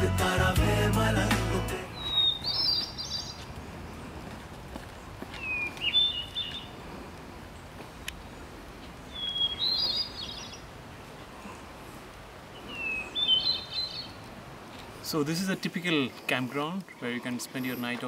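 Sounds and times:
songbird singing: 1.7 - 18.0.

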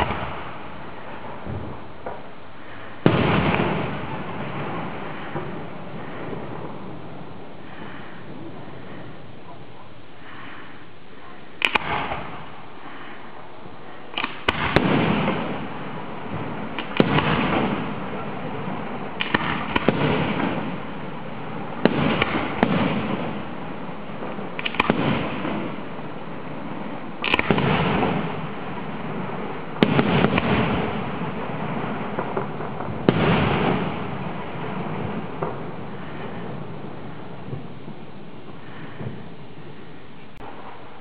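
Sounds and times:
firework bangs with rumble: 0.0 - 2.4, 3.0 - 8.5, 11.6 - 12.6, 14.2 - 39.3.

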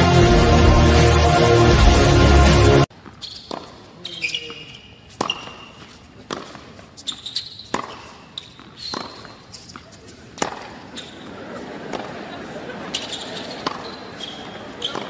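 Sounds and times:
shoes squeaking on court: 2.9 - 15.0
ball bouncing: 3.0 - 11.1
racquets striking tennis ball: 3.0 - 12.2, 12.9 - 15.0.

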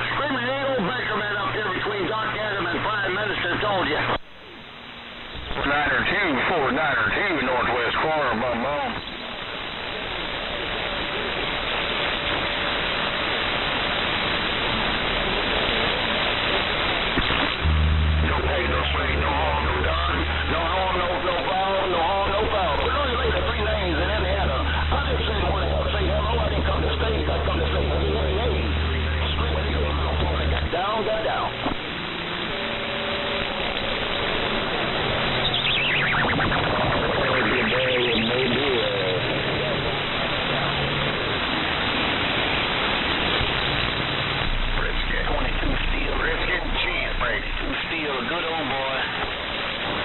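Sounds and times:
radio static hiss: 0.0 - 50.0
faint whistle tones: 35.4 - 36.4.

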